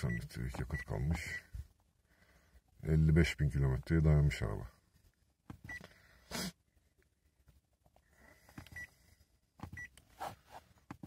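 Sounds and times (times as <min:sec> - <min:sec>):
faint high beeps: 0:00.0 - 0:01.5
rustling noise: 0:10.1 - 0:11.0.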